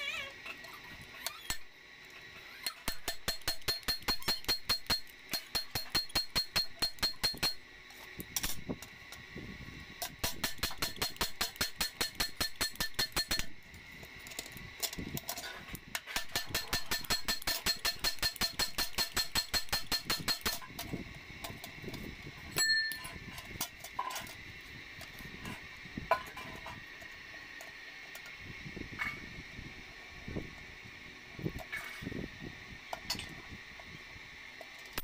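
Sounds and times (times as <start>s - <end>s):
fast metallic clicks of hand tool: 2.6s - 7.6s, 10.1s - 13.5s, 16.0s - 20.6s.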